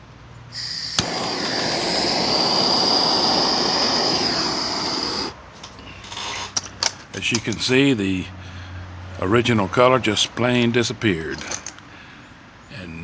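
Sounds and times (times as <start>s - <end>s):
gas torch flame hissing: 0.5s - 5.4s.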